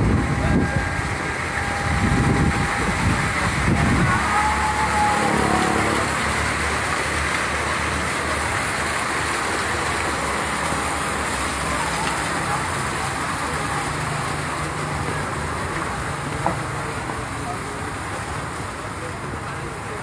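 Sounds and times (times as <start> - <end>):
wind buffeting microphone: 0.0 - 4.3
rushing outdoor ambience: 0.0 - 20.0.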